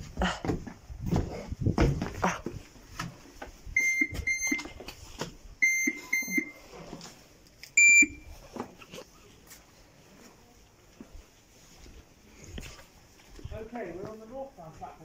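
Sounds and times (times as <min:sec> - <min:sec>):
footsteps: 0:00.0 - 0:05.5
card reader beeping: 0:03.8 - 0:04.7, 0:05.6 - 0:06.6, 0:07.8 - 0:08.2.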